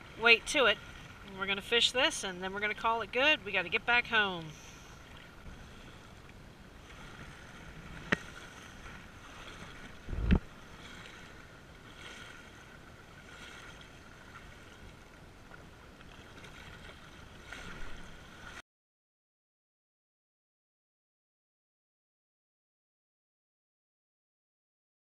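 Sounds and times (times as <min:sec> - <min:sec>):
waves lapping against rocky shore: 0:00.0 - 0:18.6
wind on microphone: 0:04.5 - 0:14.8.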